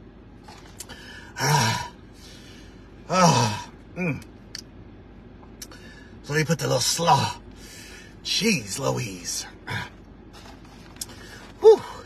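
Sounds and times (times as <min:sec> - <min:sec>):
man groaning breathily: 0:01.1 - 0:02.0, 0:03.0 - 0:04.2, 0:11.4 - 0:12.0.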